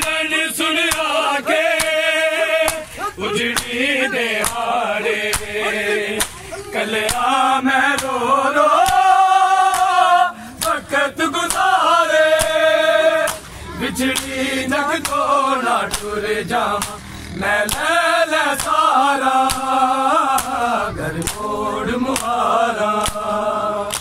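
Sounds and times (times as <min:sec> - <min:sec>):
men chanting in unison: 0:00.0 - 0:24.0
hands slapping bare chests: 0:00.9 - 0:05.6, 0:06.2 - 0:08.2, 0:08.8 - 0:15.3, 0:15.9 - 0:16.2, 0:16.8 - 0:17.0, 0:17.6 - 0:17.9, 0:18.5 - 0:20.6, 0:21.2 - 0:24.0.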